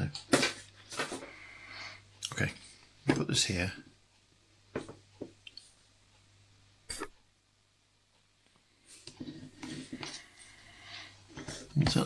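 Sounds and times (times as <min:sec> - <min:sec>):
short throat sound: 0:06.9 - 0:07.2.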